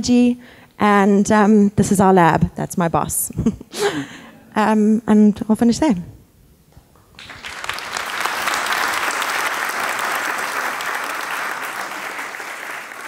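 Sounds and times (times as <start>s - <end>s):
audience applauding: 7.2s - 13.0s.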